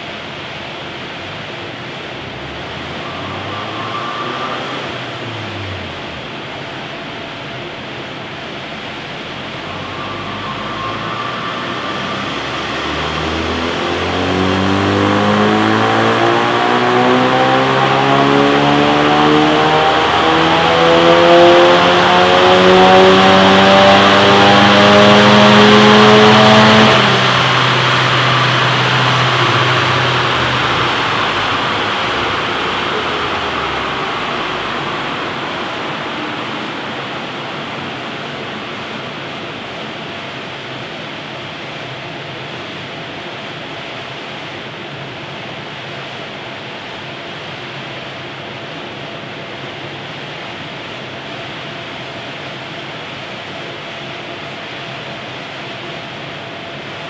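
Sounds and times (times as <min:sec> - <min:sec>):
steady rushing noise: 0:00.0 - 0:57.0
car engine revving on dynamometer: 0:02.1 - 0:07.4, 0:08.2 - 0:40.0.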